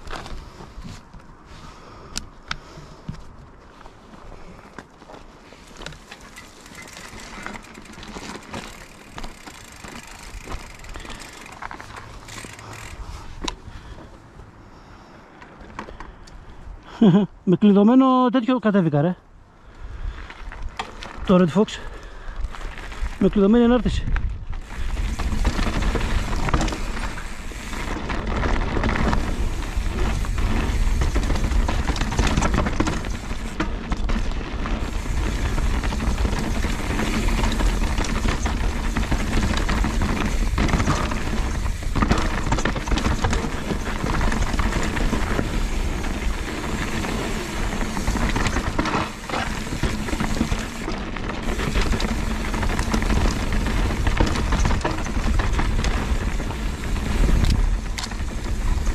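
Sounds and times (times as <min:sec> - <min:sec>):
tyres crunching over stones: 0:03.2 - 0:14.0, 0:22.3 - 0:58.9
bike rattling and knocking: 0:05.8 - 0:14.1, 0:22.5 - 0:58.9.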